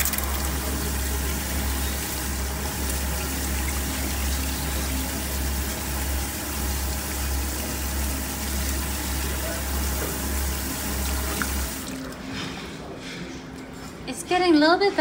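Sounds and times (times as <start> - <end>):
machine humming: 0.0 - 12.0.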